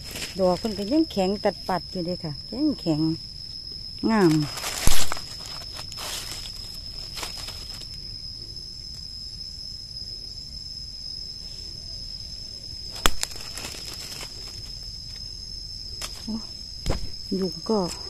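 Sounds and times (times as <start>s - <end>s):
rustling dry leaves: 0.0s - 1.2s, 4.0s - 8.7s, 12.6s - 17.4s
insect singing high-pitched: 0.0s - 18.0s.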